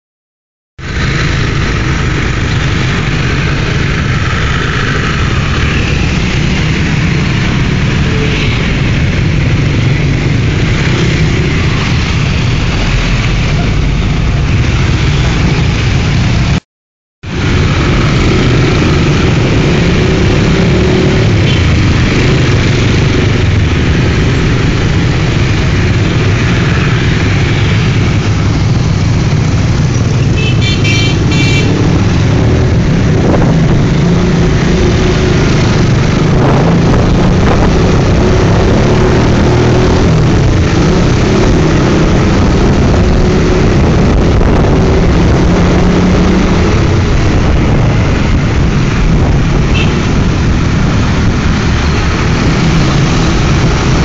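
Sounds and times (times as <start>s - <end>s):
motor scooter engine and road noise: 0.8s - 16.6s, 17.2s - 54.0s
traffic: 0.8s - 16.6s, 17.2s - 54.0s.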